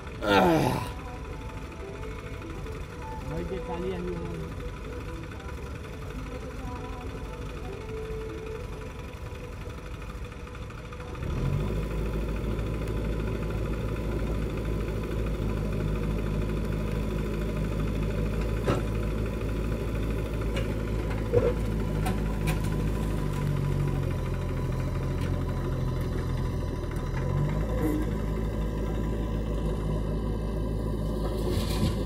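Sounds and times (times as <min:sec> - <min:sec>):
diesel engines running: 0:00.0 - 0:32.0
music: 0:00.8 - 0:09.6.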